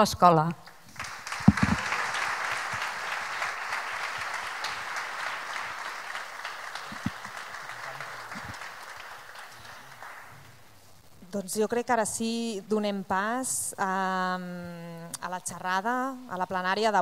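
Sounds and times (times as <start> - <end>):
audience applauding: 0.7 - 10.6.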